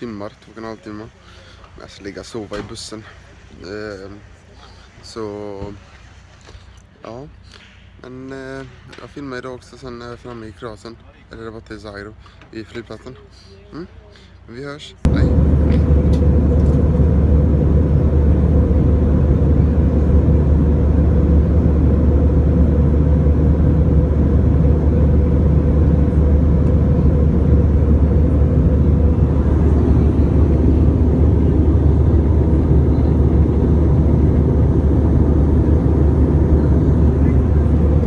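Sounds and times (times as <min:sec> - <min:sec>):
faint steady hum: 0:09.4 - 0:38.0
airliner engine and airflow rush: 0:15.0 - 0:38.0.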